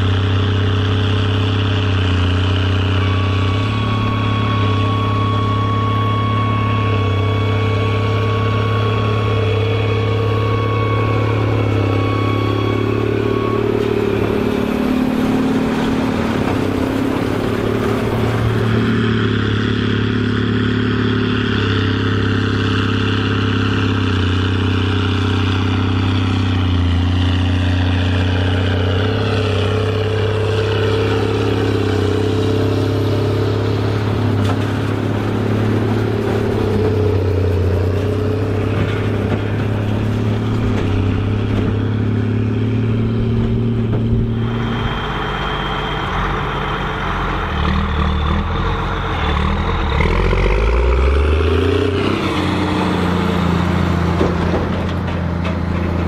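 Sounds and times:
diesel tractor engine under load: 0.0 - 56.0
baler mechanical clatter: 52.2 - 56.0.

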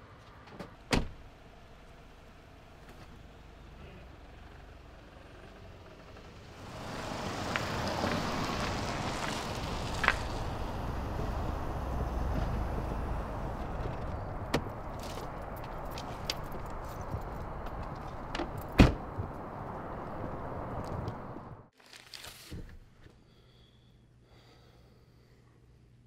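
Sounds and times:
traffic noise: 0.0 - 21.7
wind: 0.0 - 26.0
car door opening: 0.5 - 1.2, 17.9 - 19.3.

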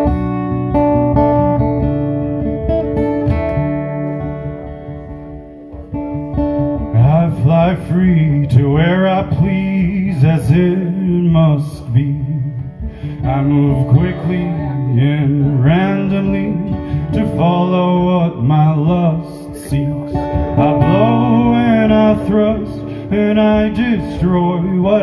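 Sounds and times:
acoustic guitar: 0.0 - 25.0
man singing folk ballad: 6.2 - 25.0.

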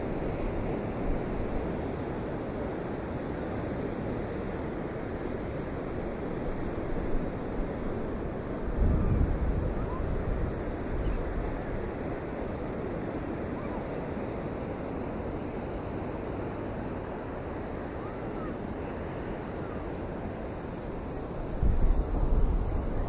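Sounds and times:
wind buffeting microphone: 6.5 - 12.9, 20.1 - 23.0.

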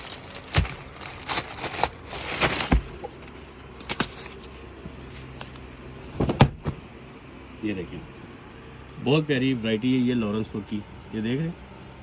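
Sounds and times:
plastic packing rustling: 0.0 - 5.5.

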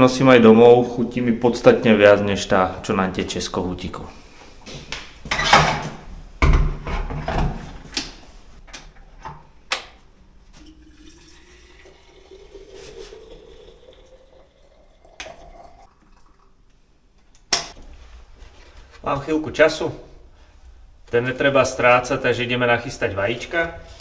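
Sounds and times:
water pouring into kettle: 10.6 - 16.7.

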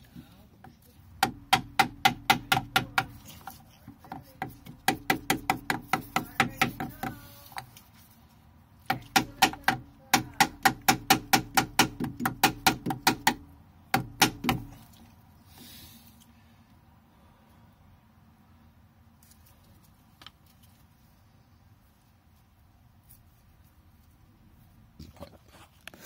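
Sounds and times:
hammer tapping on wood: 1.2 - 3.2, 4.0 - 7.2, 8.8 - 14.7.

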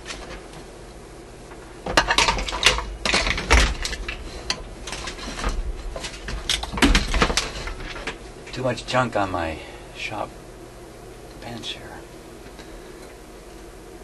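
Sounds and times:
small hard objects clattering: 1.9 - 8.2.

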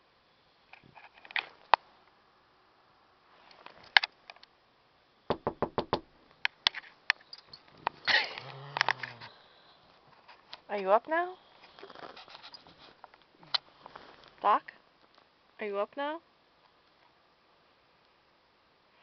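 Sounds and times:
light rustling: 11.6 - 14.4.

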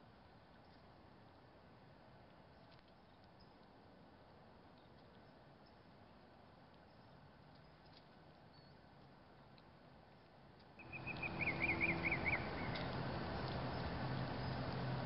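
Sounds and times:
bird trilling: 10.8 - 12.9
steady rushing noise with hum: 10.8 - 15.0.

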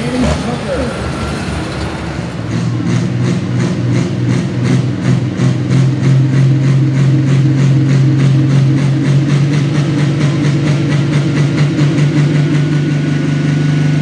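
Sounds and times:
diesel tractor engine at high revs: 0.0 - 14.0.

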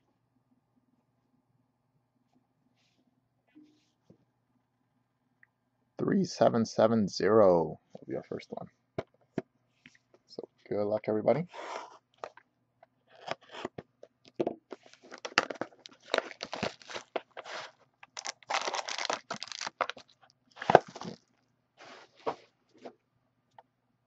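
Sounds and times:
packaging crinkling: 14.8 - 21.3
shrink wrap being slit and torn: 16.1 - 17.1, 18.1 - 20.0.

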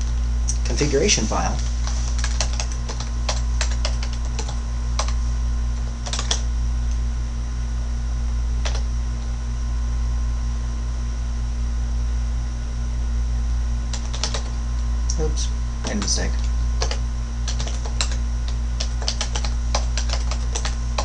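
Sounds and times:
steady low hum: 0.0 - 21.0
keyboard typing: 1.8 - 5.2, 6.0 - 6.5, 8.6 - 8.8, 13.9 - 14.6, 15.8 - 21.0.

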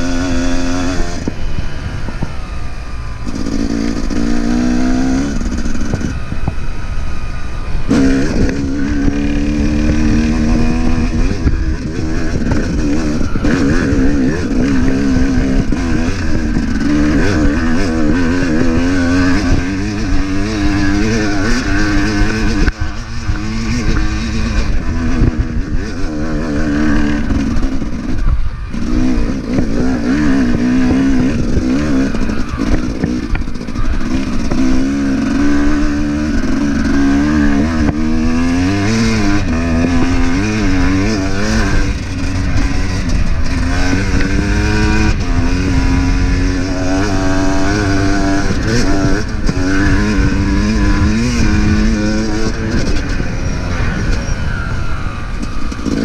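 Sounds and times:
dirt bike engine revving: 0.0 - 56.0.

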